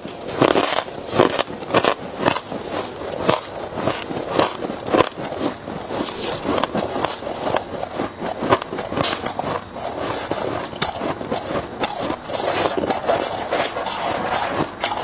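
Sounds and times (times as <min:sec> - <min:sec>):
chewing crunchy ice: 0:00.0 - 0:15.0.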